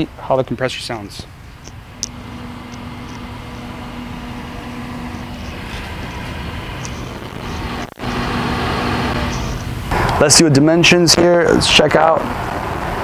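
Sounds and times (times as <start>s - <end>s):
compressor fridge humming: 1.2s - 10.0s.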